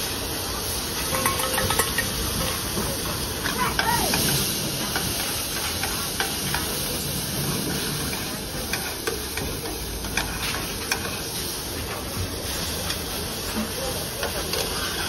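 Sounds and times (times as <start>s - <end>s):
food sizzling and frying: 0.0s - 15.0s
utensils clinking: 1.0s - 6.6s.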